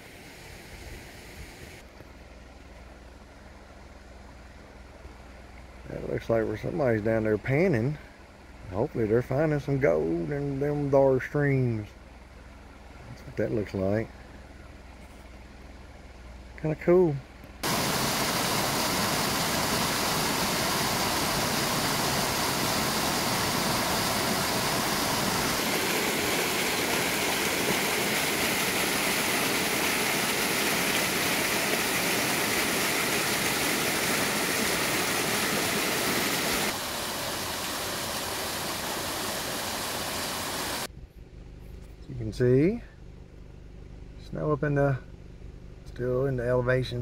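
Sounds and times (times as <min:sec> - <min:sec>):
mountain stream rushing: 0:17.6 - 0:40.9.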